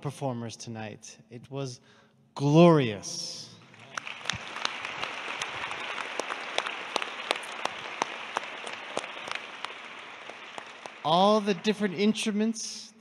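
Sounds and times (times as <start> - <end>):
crowd applauding: 3.6 - 12.5
sharp close claps: 3.7 - 12.0.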